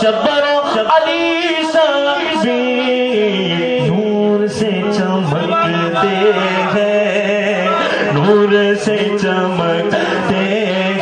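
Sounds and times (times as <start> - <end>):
man singing melismatically: 0.0 - 11.0.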